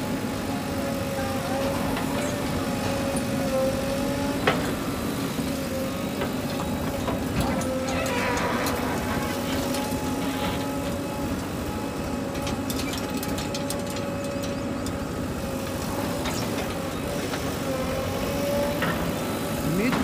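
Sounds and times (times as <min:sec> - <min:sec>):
diesel engines running: 0:00.0 - 0:20.0.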